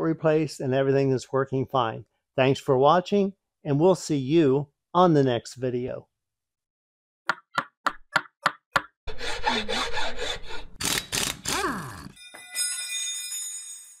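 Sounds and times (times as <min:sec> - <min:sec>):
high shimmering ring: 0:12.2 - 0:14.0.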